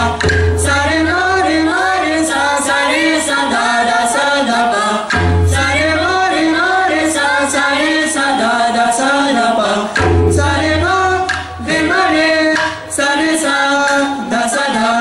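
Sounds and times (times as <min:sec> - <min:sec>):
tabla strokes: 0:00.0 - 0:02.4, 0:09.9 - 0:14.3
young voices singing in unison: 0:00.0 - 0:15.0.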